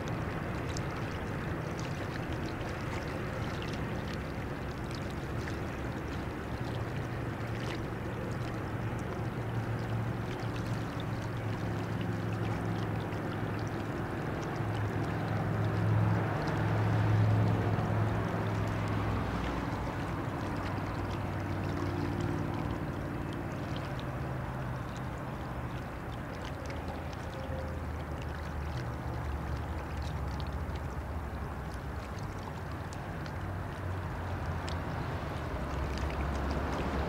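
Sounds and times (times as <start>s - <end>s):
water rushing from hull: 0.0s - 37.0s.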